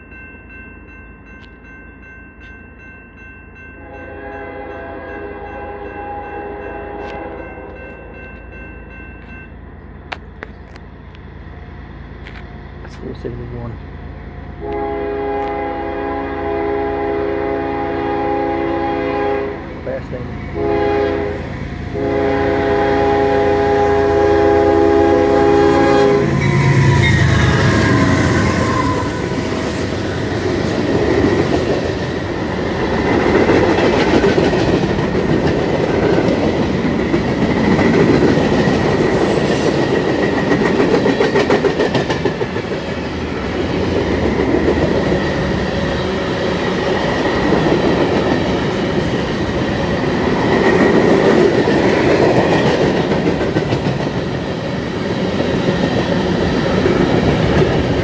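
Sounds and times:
train horn blasts: 3.8 - 8.1, 14.6 - 29.8
locomotive engine rushing past: 9.8 - 58.0
train wheels clickety-clack: 26.3 - 58.0.

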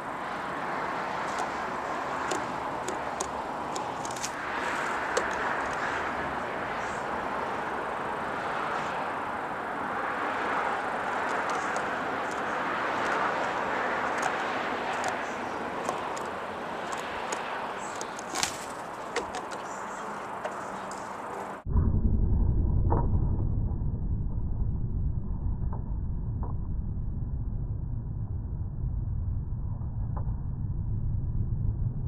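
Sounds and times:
light clicks and taps: 2.2 - 5.9, 14.1 - 15.2, 15.8 - 21.5.

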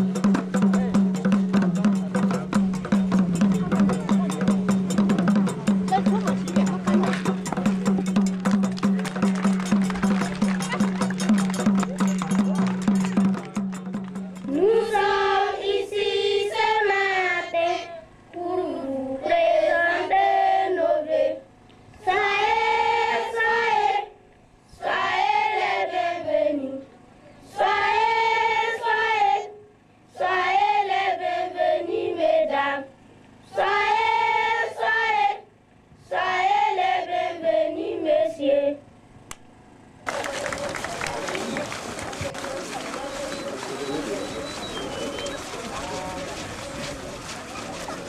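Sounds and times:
children singing together: 14.5 - 21.4, 22.0 - 24.1, 24.8 - 26.9, 27.5 - 32.9, 33.5 - 35.4, 36.0 - 38.8.

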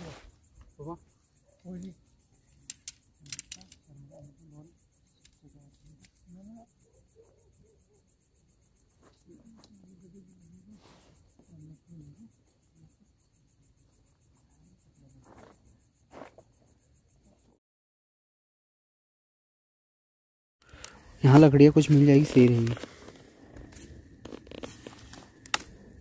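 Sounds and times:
crickets trilling: 0.0 - 17.6, 20.6 - 26.0
handling clicks and rustles: 2.6 - 3.9, 20.7 - 26.0.

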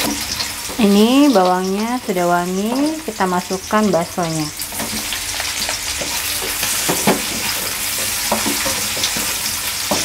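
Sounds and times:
spatula scraping and knocking pan: 0.0 - 1.0, 4.7 - 10.0
food sizzling in hot oil: 0.0 - 10.0.

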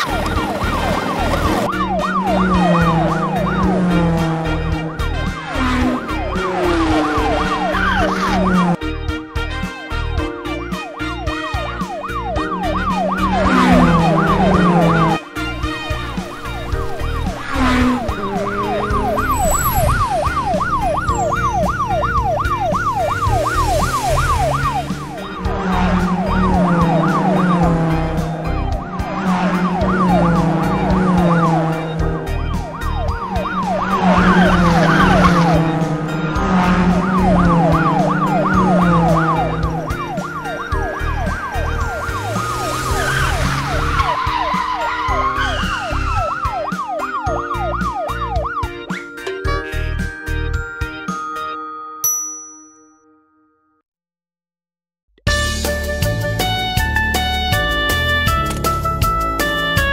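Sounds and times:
yelping police siren: 0.0 - 8.8, 10.8 - 49.0
upbeat music with bass: 0.0 - 51.6, 55.3 - 59.9.

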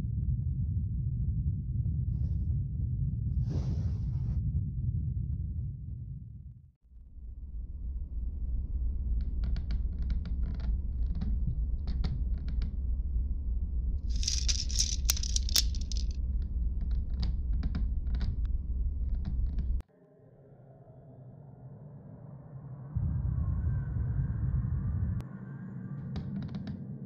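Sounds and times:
steady low rumble: 0.0 - 3.4, 4.1 - 11.9
scraping and rattling: 14.1 - 16.2.

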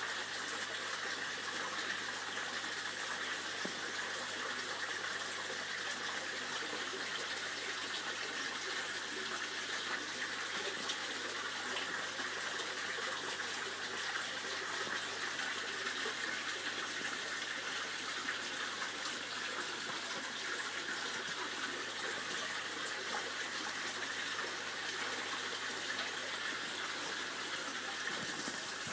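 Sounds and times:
water pouring into pond: 0.0 - 28.9.

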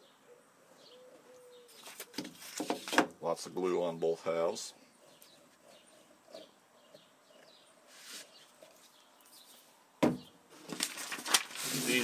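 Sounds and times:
faint bird chirps: 0.0 - 2.2
paper rustling: 1.7 - 3.1, 10.5 - 12.0.

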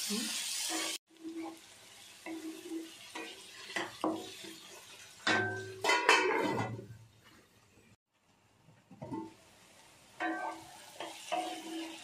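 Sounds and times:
wooden spatula scraping metal pan: 0.7 - 7.0
metal lid clattering: 5.2 - 7.0.

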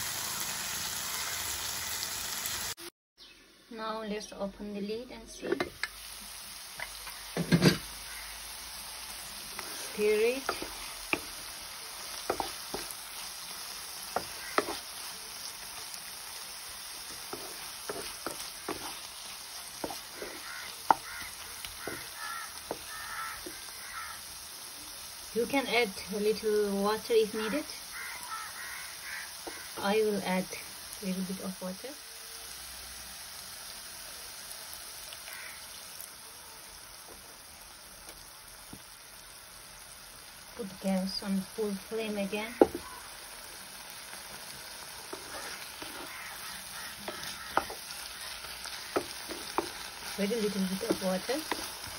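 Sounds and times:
food sizzling: 0.0 - 51.9
spatula scraping and knocking pan: 6.8 - 7.9, 9.5 - 13.3, 13.9 - 15.0, 17.0 - 23.7, 42.6 - 43.0, 45.0 - 51.9.

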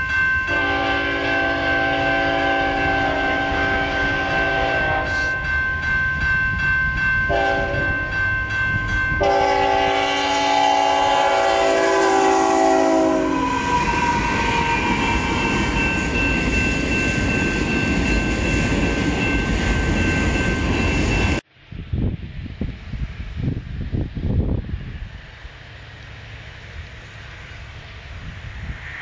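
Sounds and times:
crossing signal bell ringing: 0.0 - 10.3, 13.0 - 21.4
diesel locomotive rumbling past: 0.0 - 29.0
locomotive air horn blasts: 0.5 - 5.4, 7.3 - 8.1, 9.2 - 15.4.

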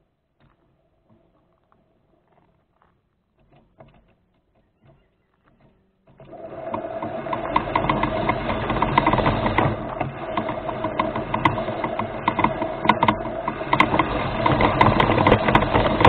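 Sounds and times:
electric motor and gears whirring: 5.3 - 16.0
rapid ticking: 6.2 - 16.0.

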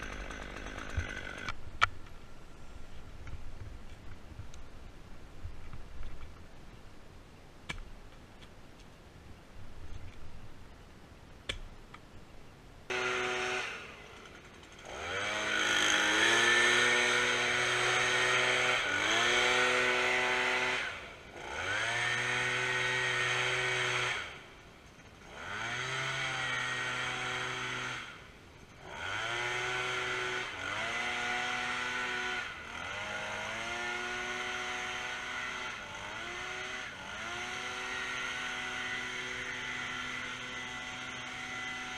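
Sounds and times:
chainsaw revving: 0.0 - 1.6, 12.9 - 41.9.

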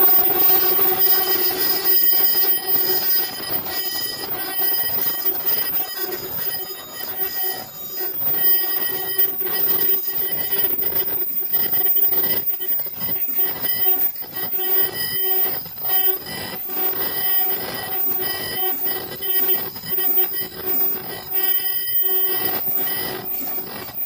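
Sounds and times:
machine line humming: 0.0 - 24.0
rapid mechanical clicking and clattering: 0.0 - 24.0.

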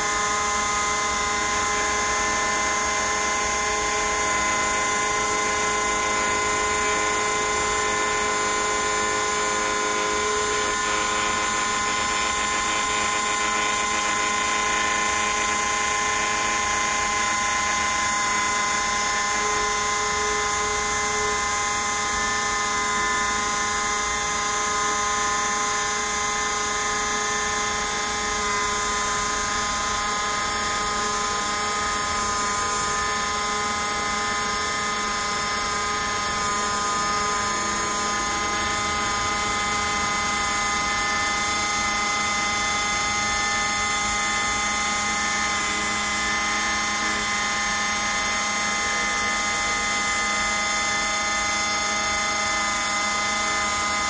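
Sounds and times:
router spindle whining: 0.0 - 54.0.

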